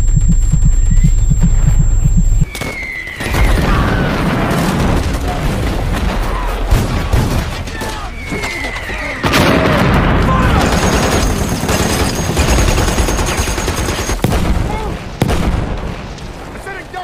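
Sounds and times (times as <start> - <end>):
heartbeat-like throbbing: 0.0 - 2.5
falling whistles: 2.4 - 4.1, 7.8 - 9.7
explosions: 2.7 - 8.4, 9.2 - 12.7, 14.2 - 16.6
gunfire: 3.4 - 7.7, 9.2 - 16.5.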